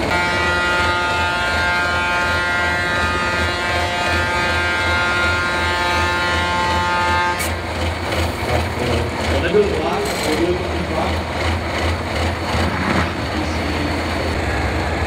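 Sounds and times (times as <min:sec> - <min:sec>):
air horn blast: 0:00.0 - 0:07.6
truck engine running: 0:00.0 - 0:15.0.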